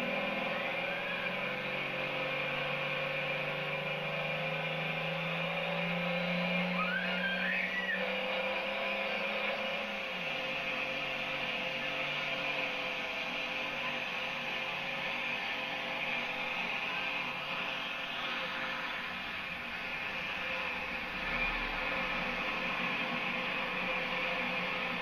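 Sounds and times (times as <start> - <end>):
diesel engine drone: 0.0 - 25.0.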